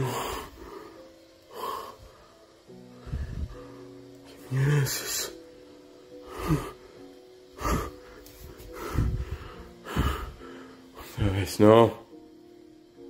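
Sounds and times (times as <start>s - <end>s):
low droning music: 0.0s - 13.0s
person gasping and breathing hard: 6.2s - 7.0s, 7.6s - 10.8s.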